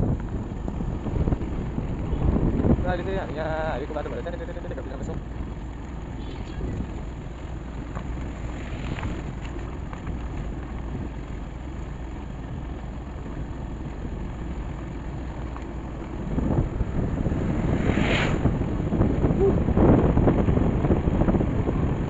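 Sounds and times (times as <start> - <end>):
motorcycle engine running: 0.0 - 22.0
wind buffeting microphone: 0.0 - 22.0.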